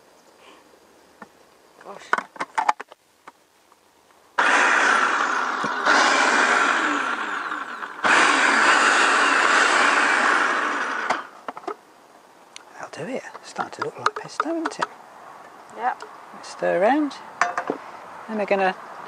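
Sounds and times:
food processor chopping: 4.4 - 11.3.

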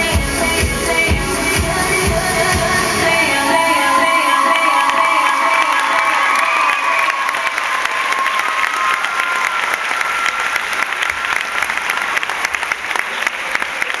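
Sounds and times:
people cheering: 4.2 - 14.0
audience applauding: 4.5 - 14.0.

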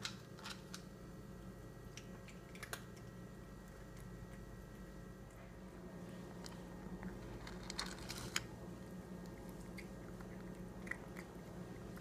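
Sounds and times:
cat crunching dry kibble: 1.9 - 5.4, 6.2 - 12.0.

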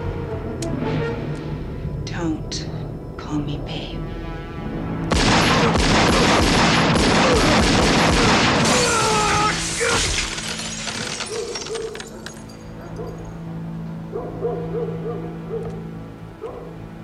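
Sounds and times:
rapid pistol gunfire: 5.1 - 8.7
window glass shattering: 8.0 - 12.6.

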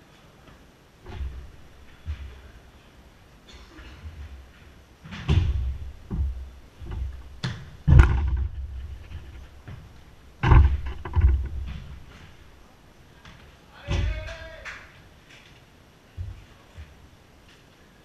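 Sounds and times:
ball thudding against walls: 5.0 - 12.4.

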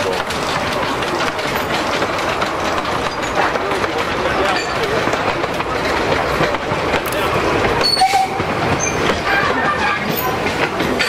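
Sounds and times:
wheels clattering over rail joints: 0.0 - 11.0
wheel squeal: 7.8 - 10.4.

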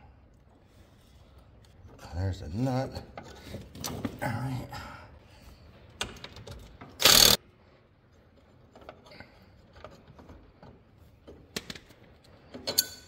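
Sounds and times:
impact wrench burst: 7.0 - 7.4.

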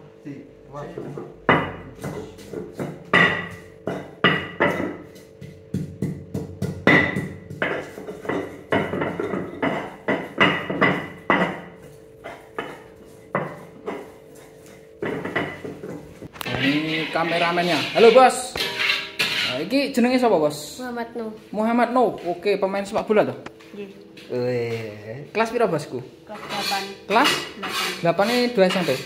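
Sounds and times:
knife chopping on cutting board: 1.5 - 14.1.

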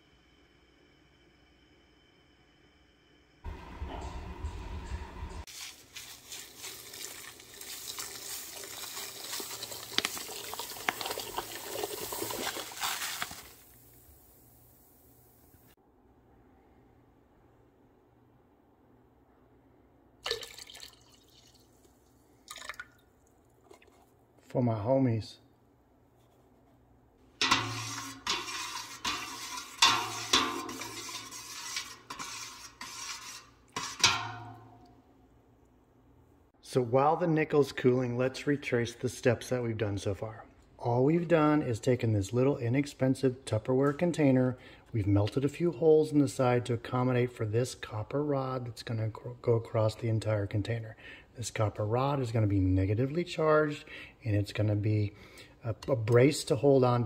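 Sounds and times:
granules pattering into water: 5.5 - 13.7
metal spoon stirring in a pot: 5.6 - 13.5, 27.4 - 34.6.

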